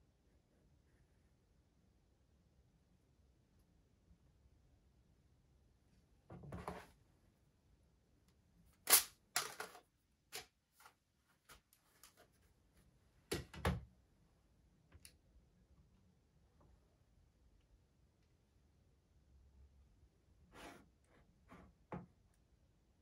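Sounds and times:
objects clicking and knocking on desk: 8.9s - 9.8s.

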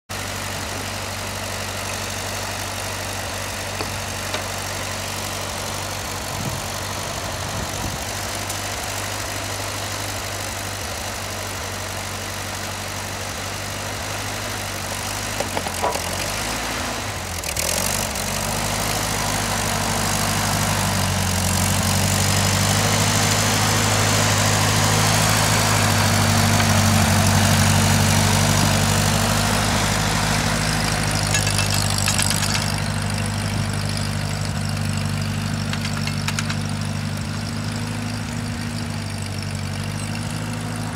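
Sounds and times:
tractor engine: 0.1s - 40.9s
clunks: 3.7s - 4.8s, 15.3s - 16.3s, 30.8s - 33.2s, 35.5s - 37.6s.

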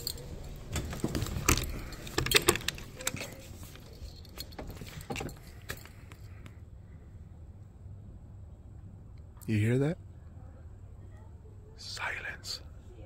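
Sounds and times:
screen door rattling and knocking: 0.6s - 3.4s, 4.4s - 5.6s.

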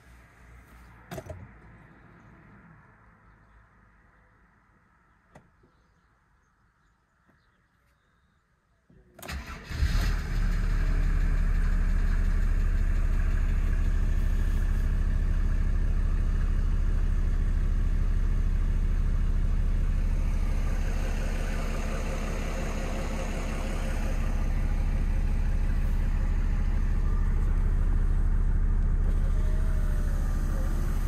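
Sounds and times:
diesel engine cranking and idling: 9.1s - 31.0s.

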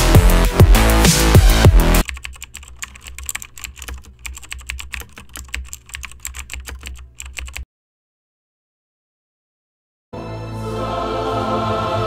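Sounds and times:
keyboard typing: 2.0s - 7.6s.

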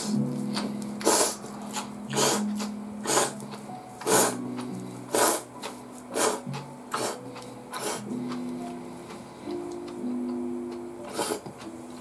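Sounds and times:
background music: 0.0s - 12.0s
noodles being slurped: 1.0s - 3.4s, 6.1s - 8.1s, 11.1s - 11.6s.

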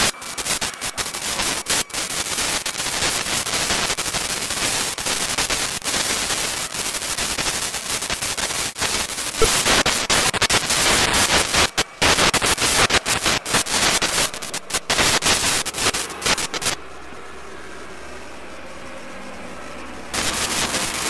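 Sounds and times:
crackling static: 0.0s - 21.0s
steady hiss: 0.0s - 21.0s
low hum: 16.8s - 21.0s.

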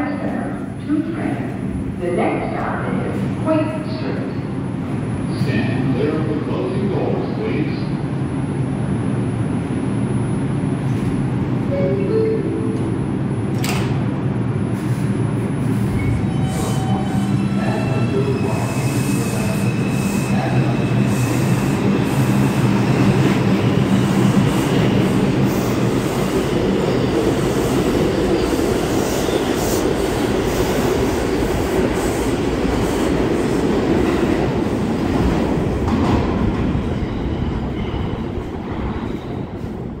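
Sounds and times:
subway train motor hum: 6.2s - 36.9s
train wheels rumbling on rails: 13.4s - 40.0s.

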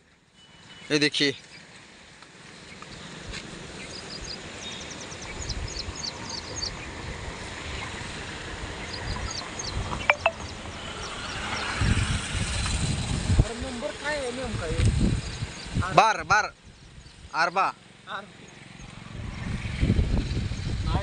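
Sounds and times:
small birds chirping: 0.4s - 7.0s, 15.1s - 15.9s, 16.6s - 21.0s.

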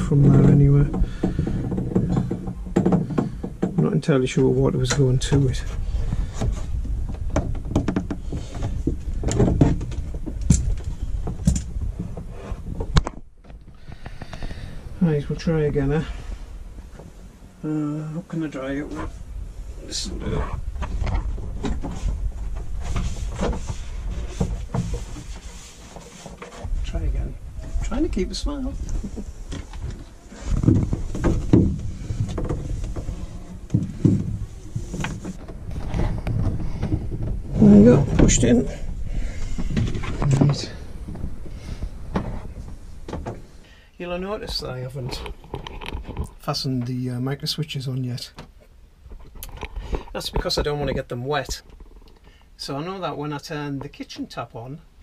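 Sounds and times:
low handling rumble: 26.6s - 45.4s.

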